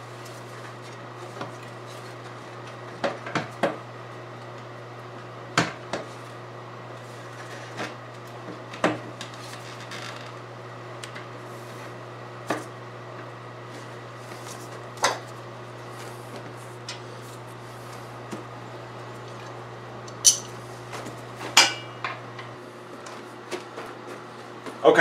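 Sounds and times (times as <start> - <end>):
steady low hum: 8.2 - 25.0.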